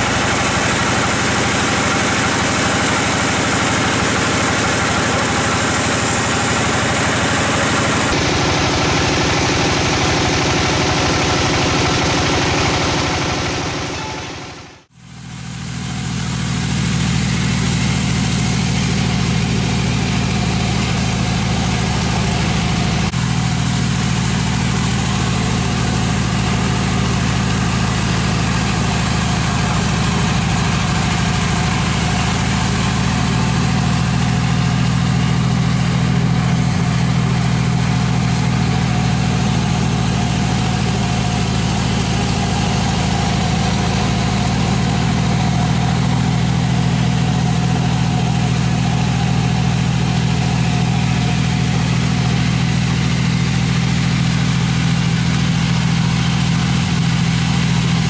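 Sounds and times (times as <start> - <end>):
engine running steadily: 0.0 - 58.0.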